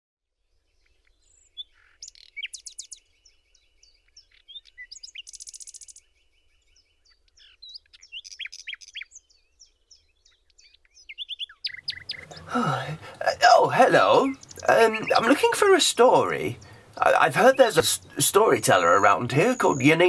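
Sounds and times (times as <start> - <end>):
small birds singing: 0.3 - 20.0
fast rattling bird trill: 1.3 - 3.1, 4.2 - 6.1, 7.4 - 9.3, 10.5 - 20.0.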